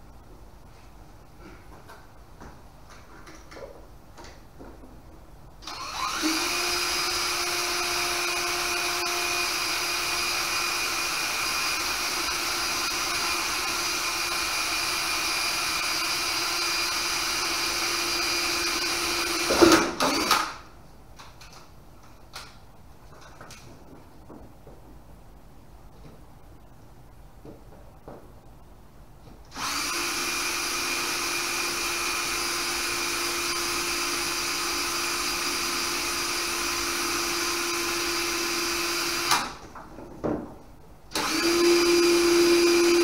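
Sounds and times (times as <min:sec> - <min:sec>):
power drill drilling: 0:05.6 - 0:20.5, 0:29.5 - 0:39.6, 0:41.1 - 0:43.0.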